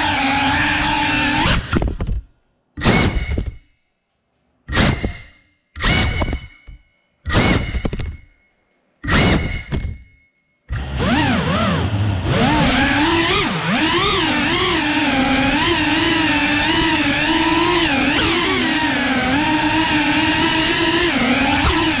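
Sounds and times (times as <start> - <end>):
quadcopter motors whining: 0.0 - 1.7, 10.7 - 22.0.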